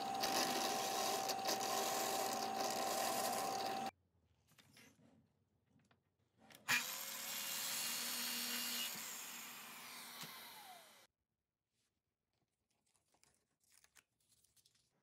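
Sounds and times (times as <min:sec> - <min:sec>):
miter saw cutting wood: 0:00.0 - 0:03.9.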